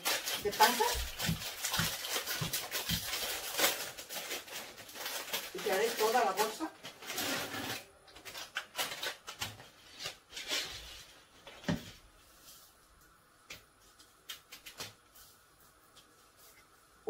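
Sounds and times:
plastic bag rustling and crinkling: 0.0s - 13.1s.

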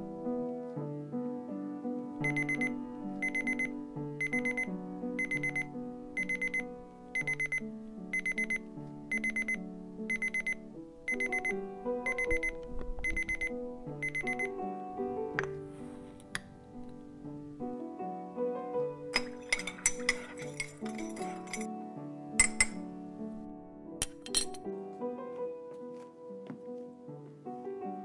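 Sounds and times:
slow background music: 0.0s - 28.0s
digital alarm clock beeping: 2.2s - 14.5s.

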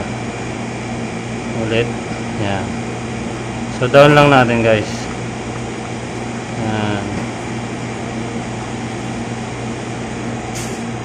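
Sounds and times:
freezer compressor humming: 0.0s - 11.0s.

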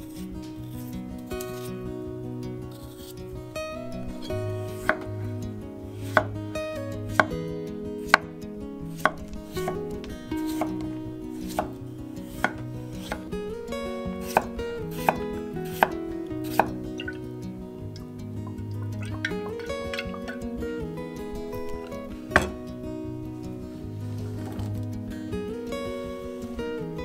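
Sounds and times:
knife knocking on wooden board: 22.4s - 22.6s.

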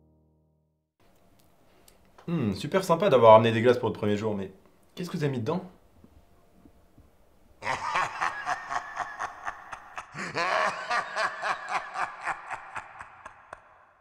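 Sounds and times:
pulsing laughter: 7.6s - 14.0s.

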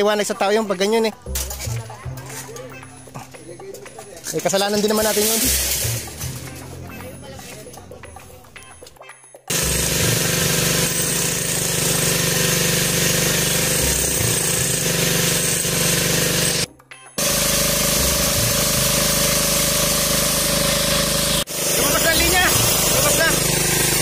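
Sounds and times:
jackhammer rattling into concrete: 4.2s - 6.7s, 9.5s - 24.0s.

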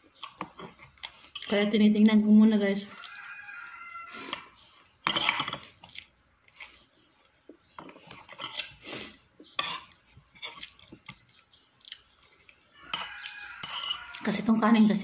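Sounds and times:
cutlery scraping ceramic plates: 4.2s - 5.7s, 7.8s - 8.8s, 9.4s - 10.6s, 12.8s - 14.4s.

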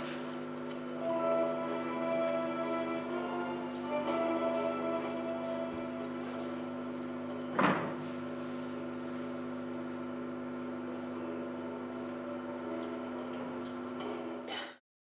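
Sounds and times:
hum of held tones: 8.2s - 14.3s.

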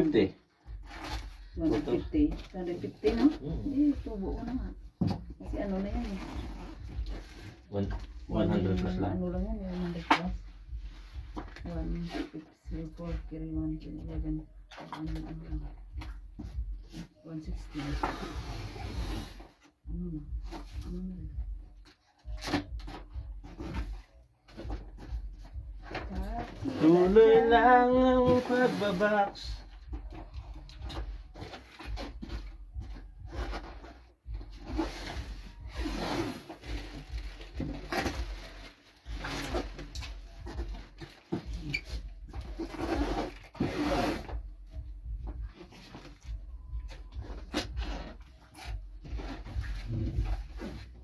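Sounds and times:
items rustling in cardboard box: 0.0s - 10.0s, 21.8s - 51.0s
scraping in cardboard box: 16.8s - 19.7s, 23.4s - 29.4s, 31.0s - 44.9s, 47.0s - 51.0s
person humming a tune: 19.9s - 21.6s.

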